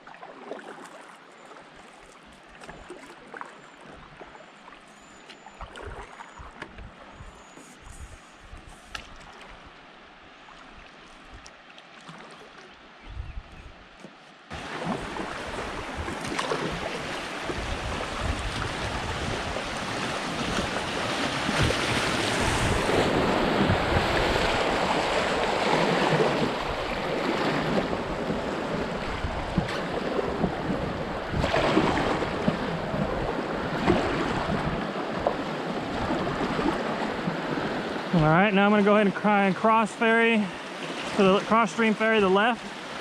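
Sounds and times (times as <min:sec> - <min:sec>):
water splashing around kayak: 0:00.0 - 0:43.0
wind on microphone: 0:05.8 - 0:09.7, 0:13.0 - 0:13.8, 0:14.6 - 0:38.0
river water rushing: 0:14.5 - 0:43.0.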